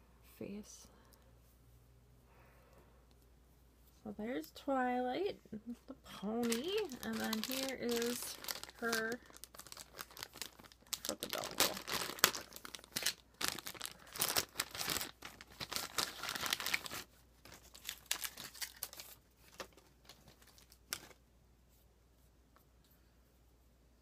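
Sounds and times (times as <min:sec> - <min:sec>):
plastic bag crinkling: 0:06.2 - 0:21.2.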